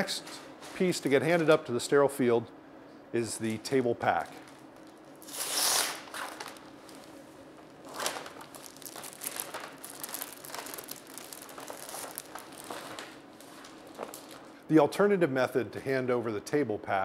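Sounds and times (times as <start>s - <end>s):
paper and wrap crinkling: 4.4s - 14.6s
paper pouch peeling: 4.5s - 7.1s, 7.8s - 14.6s.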